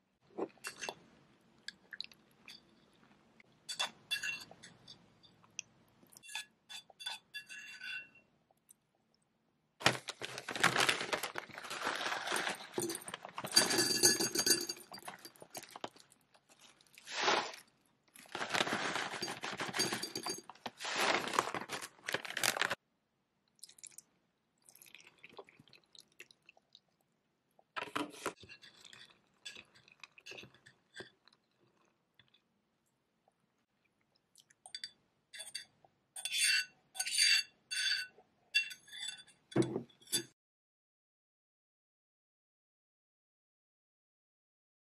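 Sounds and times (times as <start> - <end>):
spoon clinking in a mug: 3.7 - 5.0, 12.8 - 15.4, 19.2 - 20.5, 34.7 - 40.3
plastic bag rustling: 9.8 - 14.4, 17.0 - 22.8
cereal pouring into a mug: 10.5 - 16.0, 16.6 - 22.8.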